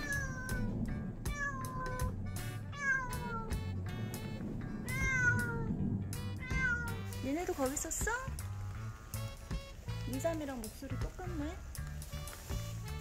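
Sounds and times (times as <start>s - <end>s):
cat meowing: 0.0s - 7.2s.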